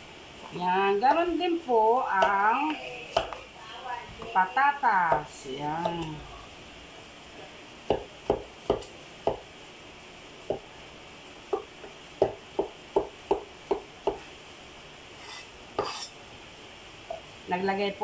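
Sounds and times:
knife chopping on wood: 7.9s - 9.4s, 11.5s - 14.2s
knife scraping: 15.2s - 16.2s.

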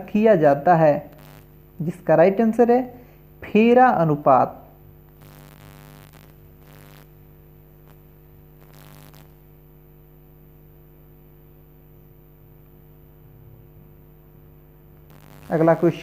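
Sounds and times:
low electrical hum: 0.0s - 16.0s
soft hissy noises: 8.6s - 9.4s, 15.1s - 16.0s.

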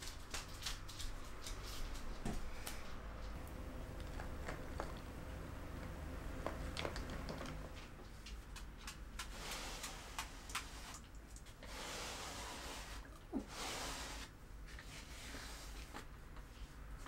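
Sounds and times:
lint roller rustling: 0.0s - 17.0s
lint roller crackling on bedsheet: 9.2s - 17.0s.

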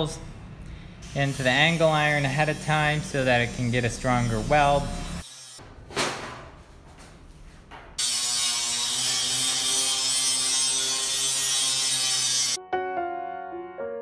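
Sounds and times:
angle grinder grinding steel: 1.0s - 5.7s, 8.0s - 12.6s.

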